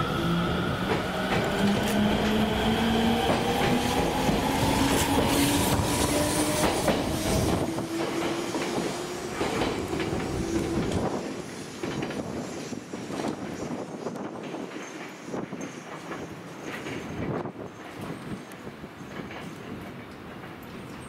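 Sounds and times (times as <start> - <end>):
diesel railcar engine accelerating: 0.0 - 12.4.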